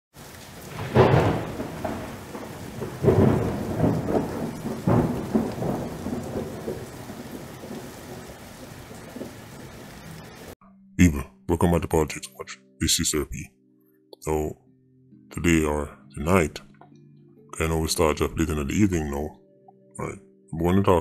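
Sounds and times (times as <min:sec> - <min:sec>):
steady rain: 0:00.1 - 0:10.6
thunder rolling: 0:00.2 - 0:10.6.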